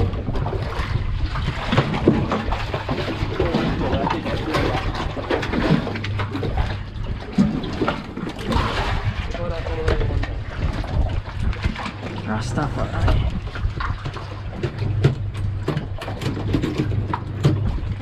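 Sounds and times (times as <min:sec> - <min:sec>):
low steady hum: 0:00.0 - 0:18.0
water splashing around boat: 0:00.0 - 0:18.0.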